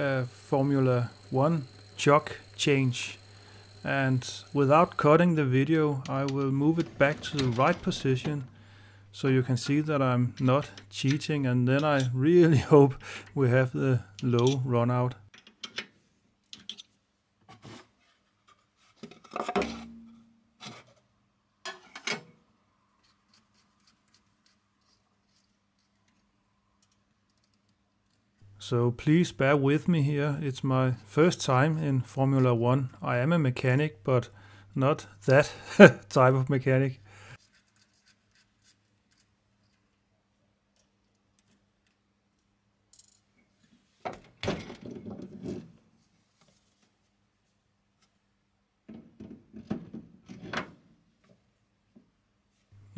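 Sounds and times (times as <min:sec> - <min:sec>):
metal rubbing and scraping: 0:00.0 - 0:08.6
small clicks of hands working: 0:23.0 - 0:28.4, 0:37.4 - 0:40.1, 0:40.7 - 0:43.1.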